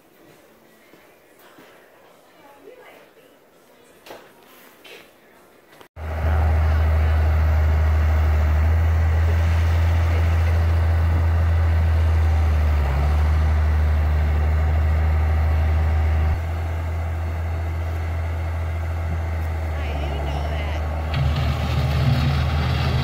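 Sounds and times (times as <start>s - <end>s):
tractor diesel engine under load: 6.0s - 23.0s.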